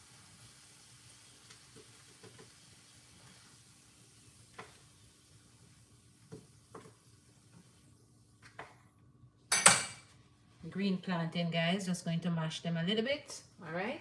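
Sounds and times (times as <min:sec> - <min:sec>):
plantain sizzling in hot oil: 0:00.0 - 0:08.4.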